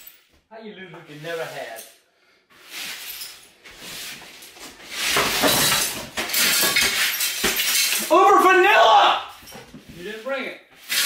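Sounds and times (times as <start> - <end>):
broom sweeping broken ceramic: 1.1 - 11.0
ceramic shards clinking: 5.1 - 8.1.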